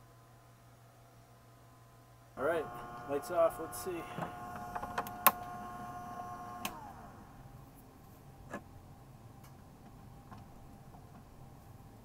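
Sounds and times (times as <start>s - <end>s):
small motor whining: 2.4s - 7.5s.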